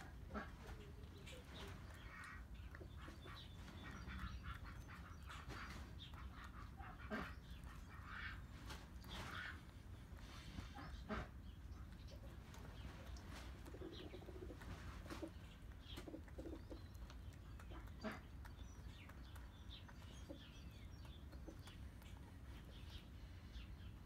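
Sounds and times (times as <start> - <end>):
birds calling: 0.0 - 24.0
cat chewing crunchy food: 12.2 - 22.9.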